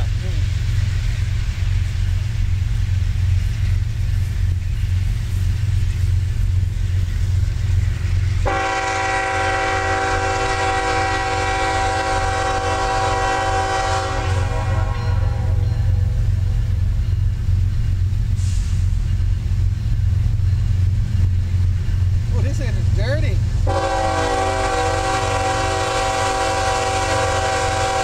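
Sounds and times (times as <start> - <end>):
locomotive air horn blast: 8.4 - 15.6, 23.6 - 28.0.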